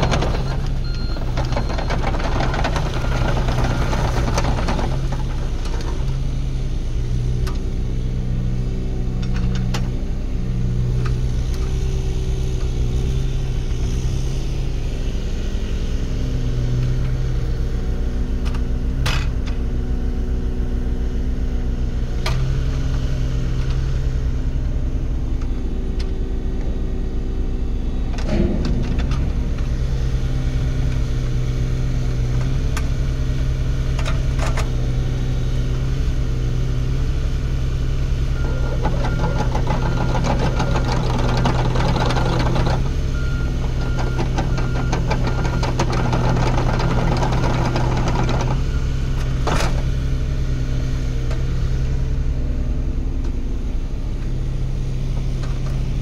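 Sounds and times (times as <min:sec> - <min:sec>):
mini excavator diesel engine: 0:00.0 - 0:56.0
dense rattle with high tone: 0:28.0 - 0:32.4.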